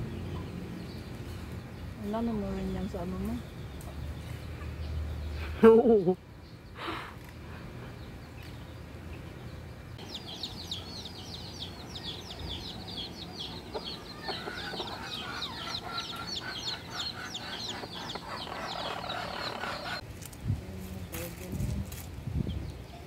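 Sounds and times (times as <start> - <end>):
chicks peeping: 6.4 - 20.0
chickens clucking: 10.0 - 20.0.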